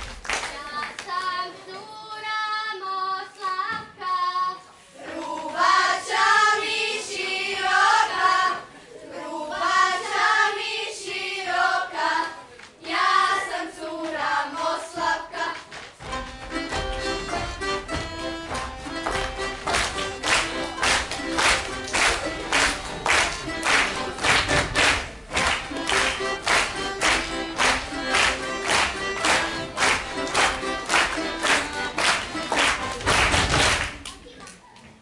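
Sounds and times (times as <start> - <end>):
girls singing in unison: 0.6 - 15.8
accordion: 12.9 - 33.9
plucked strings: 16.1 - 33.2.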